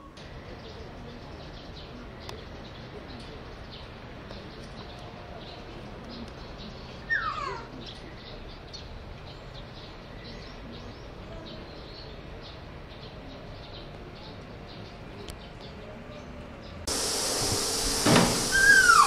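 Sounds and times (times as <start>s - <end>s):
small birds chirping: 0.0s - 19.0s
steady background hum: 0.1s - 19.0s
loud descending bird call: 7.1s - 7.7s, 16.9s - 19.0s.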